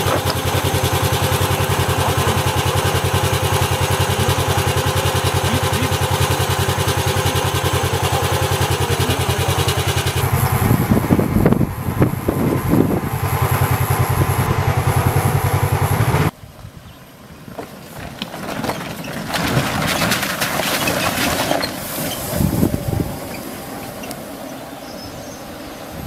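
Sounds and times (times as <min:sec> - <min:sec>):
tyres crunching over gravel: 0:00.0 - 0:10.4, 0:17.2 - 0:22.4
pulsing motor running: 0:00.0 - 0:16.3
low rumble: 0:00.5 - 0:16.3.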